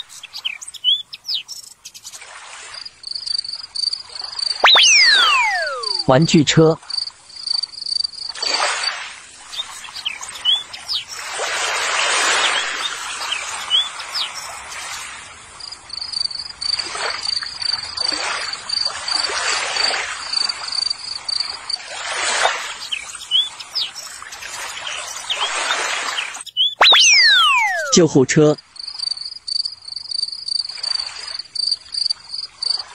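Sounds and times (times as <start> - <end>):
bird chirps: 0.0 - 2.2, 2.8 - 8.1, 9.5 - 11.2, 12.2 - 14.8, 22.7 - 28.1
high insect trill: 0.0 - 32.9.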